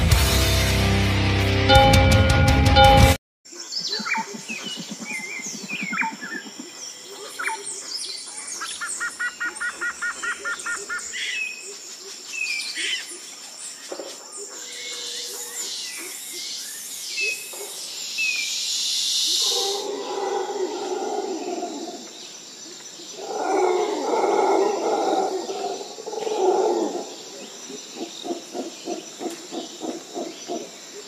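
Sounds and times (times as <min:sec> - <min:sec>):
quick evenly spaced bird notes: 0:01.7 - 0:08.4
birds chirping and calling: 0:03.5 - 0:31.0.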